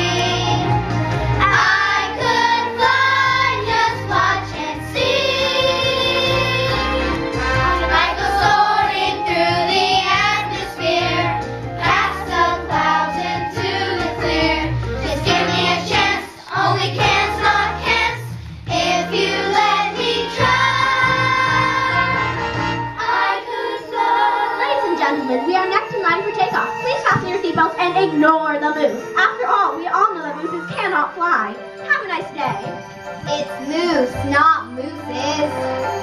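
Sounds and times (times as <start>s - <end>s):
instrumental accompaniment with bass: 0.0s - 23.3s
children's choir singing: 0.0s - 25.2s.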